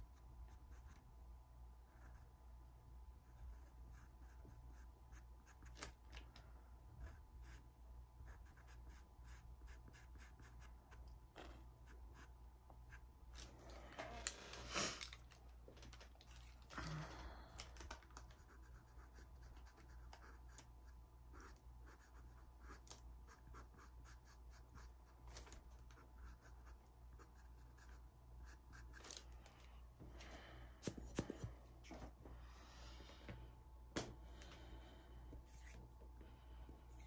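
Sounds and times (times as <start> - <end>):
pencil scratching on card: 3.2 - 5.8, 7.0 - 11.0, 18.4 - 25.2, 26.0 - 29.0.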